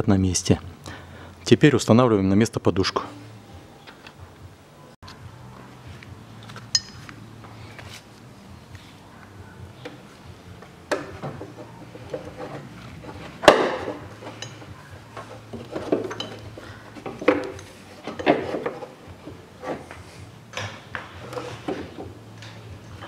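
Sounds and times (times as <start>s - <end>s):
metal clanks and knocks: 10.9s - 23.0s.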